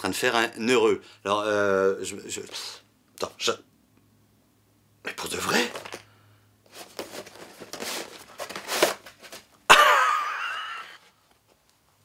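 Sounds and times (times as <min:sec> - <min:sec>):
cardboard packaging rustling: 0:05.5 - 0:06.0, 0:06.6 - 0:09.6
man laughing wheezily: 0:09.7 - 0:11.1.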